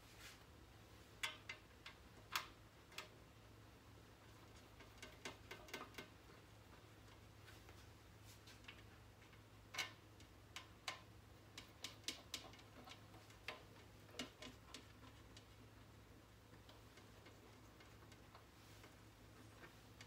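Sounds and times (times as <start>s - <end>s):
small clicks and taps on glass panel: 1.2s - 3.4s, 4.2s - 20.0s.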